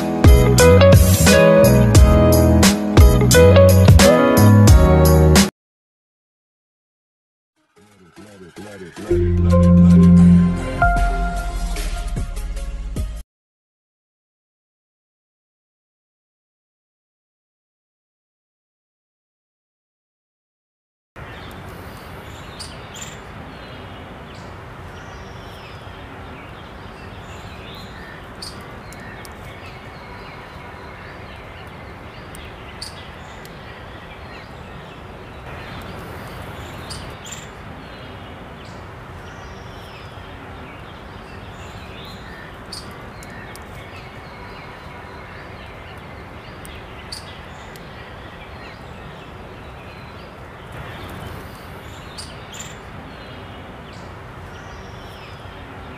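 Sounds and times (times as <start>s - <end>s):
birds chirping: 21.2s - 55.9s.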